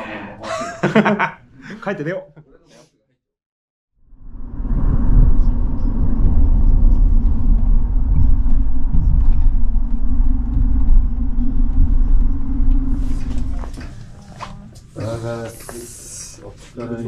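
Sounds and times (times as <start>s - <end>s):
car cabin road rumble: 4.2s - 14.8s.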